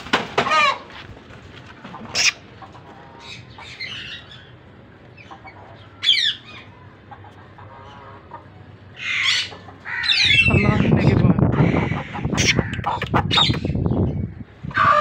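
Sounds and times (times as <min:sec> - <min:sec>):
chicken clucking: 0:01.8 - 0:03.8, 0:05.2 - 0:08.7, 0:11.6 - 0:13.7.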